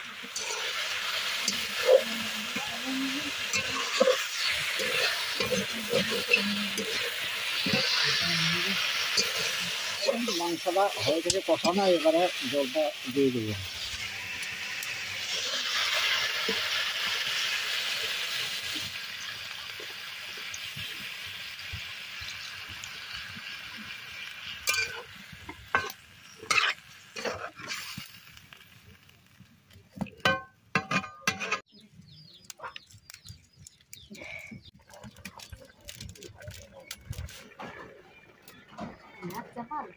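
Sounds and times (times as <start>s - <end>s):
water sizzling in hot pan: 0.0s - 31.7s
metal spatula scraping pan: 0.2s - 13.1s, 25.7s - 28.0s, 30.3s - 31.6s.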